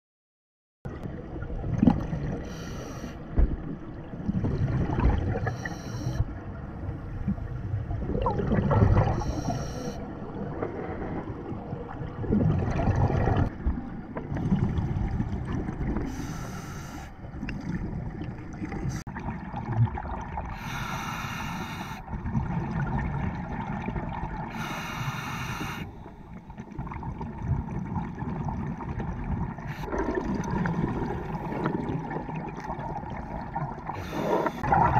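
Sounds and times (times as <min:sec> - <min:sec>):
diver breathing through regulator: 0:02.4 - 0:03.2, 0:05.4 - 0:06.2, 0:09.2 - 0:10.1, 0:16.1 - 0:17.2, 0:20.5 - 0:22.1, 0:24.5 - 0:26.3, 0:33.9 - 0:34.8
bubbles bursting underwater: 0:07.9 - 0:09.2, 0:11.0 - 0:13.6, 0:26.7 - 0:34.9.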